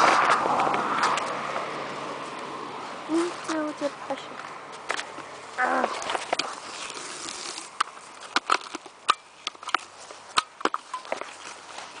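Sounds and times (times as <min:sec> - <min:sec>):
bicycle handlebar clicks and rattles: 0:07.8 - 0:11.5.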